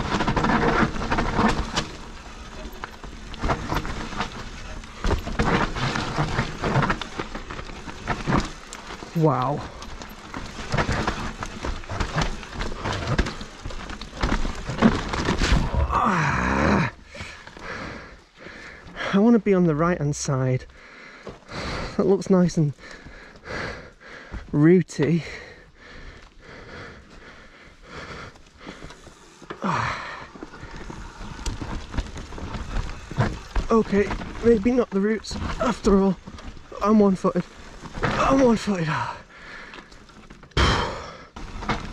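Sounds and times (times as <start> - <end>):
bike rattling and knocking: 0.0 - 41.9
tyres rumbling over dirt: 0.0 - 41.9
rider breathing hard: 9.6 - 19.2, 20.7 - 34.4, 38.8 - 41.9.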